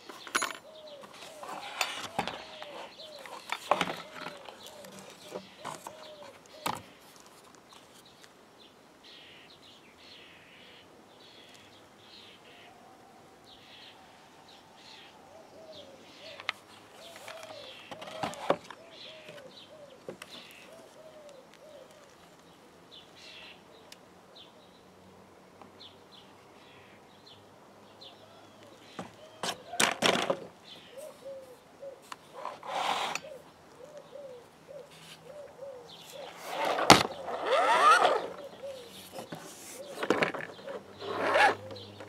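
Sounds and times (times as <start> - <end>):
small birds chirping: 0.0 - 12.8, 13.4 - 42.0
pigeon cooing: 0.6 - 6.9, 13.7 - 22.2, 28.2 - 42.0.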